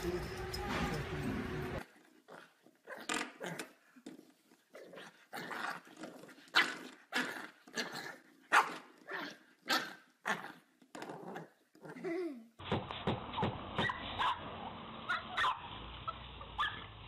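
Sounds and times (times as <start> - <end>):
puppy growling and barking: 4.8 - 12.1, 13.4 - 17.0.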